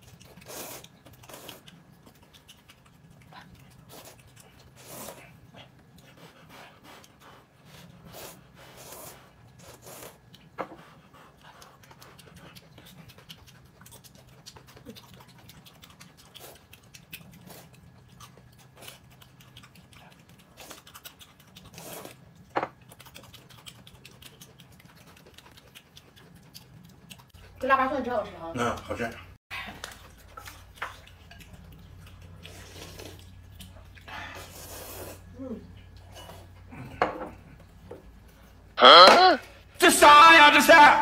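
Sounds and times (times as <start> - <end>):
chewing: 0.0 - 38.8.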